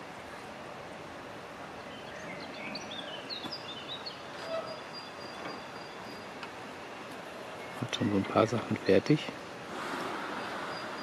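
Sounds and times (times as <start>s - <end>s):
outdoor background hiss: 0.0s - 11.0s
songbird chirping: 1.7s - 8.4s, 10.1s - 11.0s.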